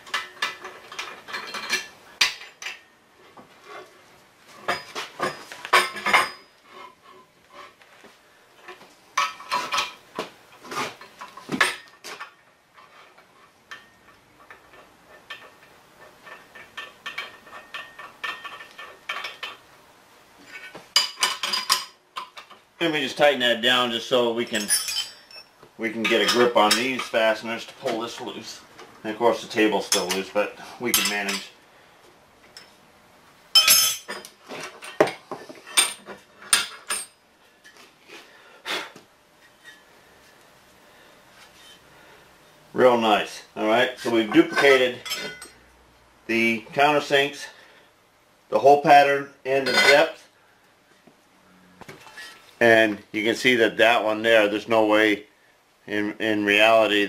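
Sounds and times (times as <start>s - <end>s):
metal clinks and knocks: 0.0s - 2.9s, 4.6s - 7.0s, 11.0s - 19.6s, 24.5s - 27.2s, 33.6s - 37.8s, 44.3s - 45.6s
metal tools clanking: 0.1s - 2.9s, 4.6s - 7.2s, 24.4s - 28.3s, 29.8s - 31.5s, 33.6s - 37.8s, 44.0s - 45.6s, 49.5s - 50.2s.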